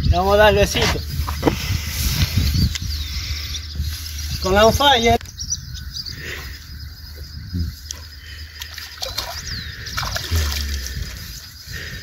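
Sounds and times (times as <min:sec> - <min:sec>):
water splashing and sloshing: 0:08.3 - 0:11.5.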